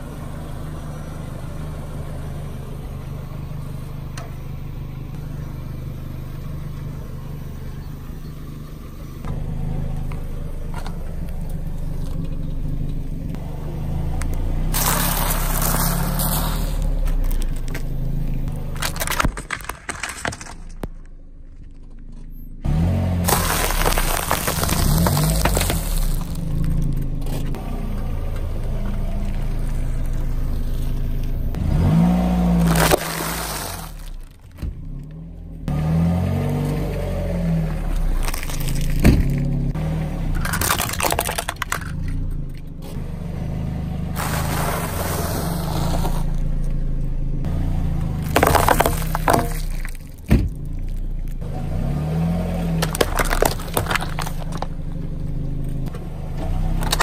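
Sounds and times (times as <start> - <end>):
car engine humming: 0.0 - 57.0
tyre crushing objects: 14.7 - 21.1, 22.7 - 27.5, 31.6 - 34.9, 37.7 - 39.6, 40.4 - 42.1, 44.2 - 46.4, 48.0 - 51.4, 52.6 - 54.8, 56.7 - 57.0.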